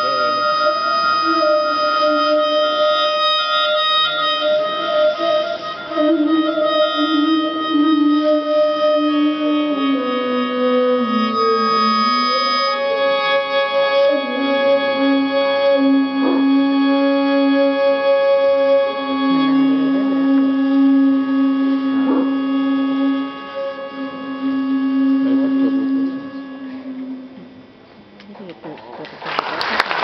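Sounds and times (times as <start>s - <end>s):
slow organ-like instrumental music: 9.0s - 27.8s.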